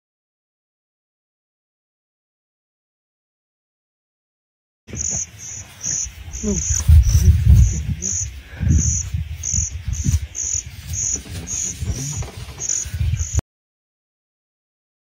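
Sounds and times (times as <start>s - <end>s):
insect chirping: 4.9s - 13.4s.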